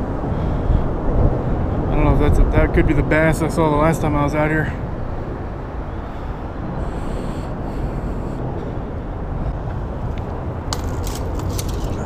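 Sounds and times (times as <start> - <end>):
highway traffic rumble: 0.0 - 12.0
leafy plants rustling against camera: 10.3 - 12.0.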